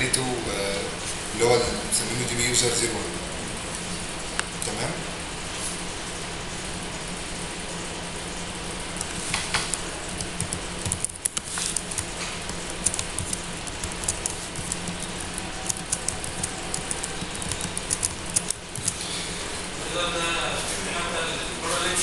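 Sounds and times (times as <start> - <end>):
background hum and hiss: 0.0 - 22.0
keyboard and mouse clicking: 9.0 - 19.0.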